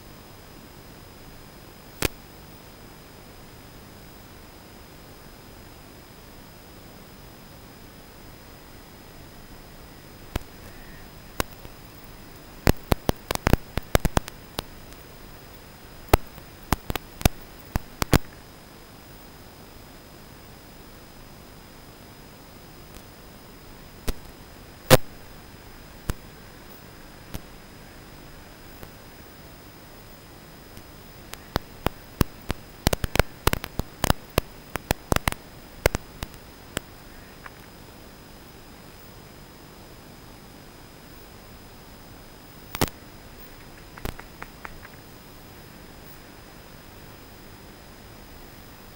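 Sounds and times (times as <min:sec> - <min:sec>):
faint high whine: 0:00.0 - 0:48.9
radio static hiss: 0:00.0 - 0:48.9
thin high whine: 0:01.4 - 0:19.4
sharp irregular clicks: 0:10.3 - 0:18.5, 0:30.7 - 0:37.7, 0:42.7 - 0:45.2.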